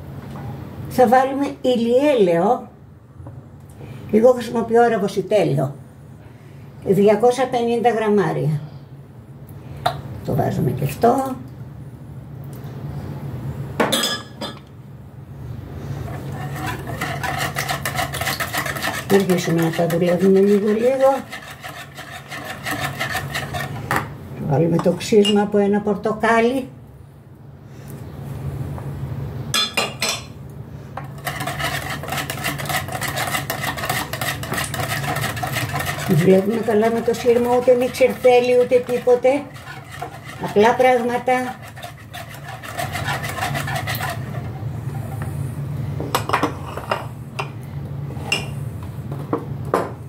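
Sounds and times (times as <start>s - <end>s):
whisk beating in plastic bowl: 16.1s - 23.8s, 31.1s - 44.6s.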